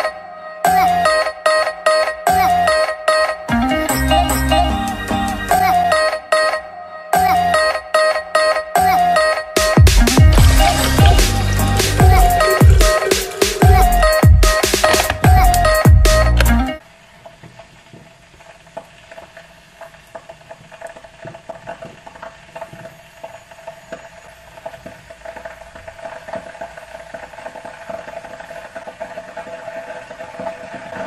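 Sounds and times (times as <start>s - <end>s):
kettle water crackling: 9.6s - 31.0s
faint hiss: 10.7s - 31.0s.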